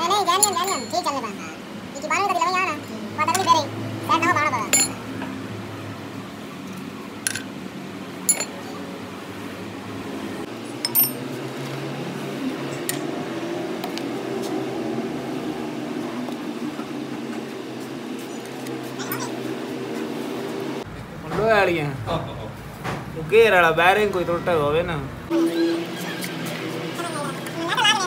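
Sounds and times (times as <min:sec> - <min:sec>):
mechanical hum: 0:00.0 - 0:28.0.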